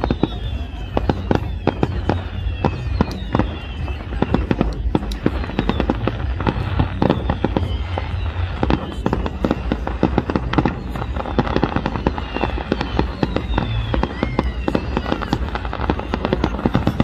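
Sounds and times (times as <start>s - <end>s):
faint falling whistles: 0.0s - 17.0s
firework shell bursts and crackling: 0.0s - 17.0s.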